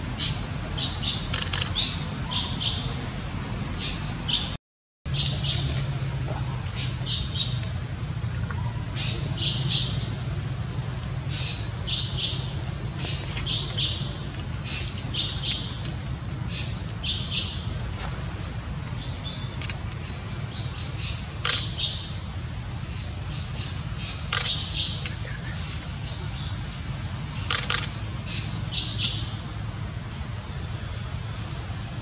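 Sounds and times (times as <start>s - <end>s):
steady low hum: 0.0s - 32.0s
bird chirping: 0.1s - 3.0s, 3.8s - 26.6s, 27.3s - 29.4s.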